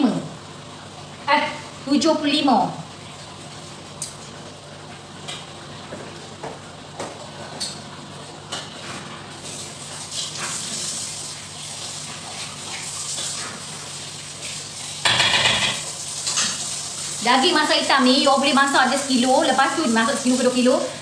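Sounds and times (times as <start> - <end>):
food sizzling in a pan: 9.4 - 21.0
pans and utensils clicking: 15.0 - 16.7.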